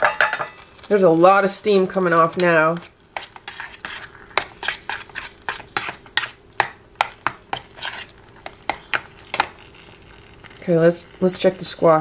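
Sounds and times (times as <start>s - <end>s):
metal spoon scraping saucepan: 2.2s - 6.4s, 7.5s - 9.8s.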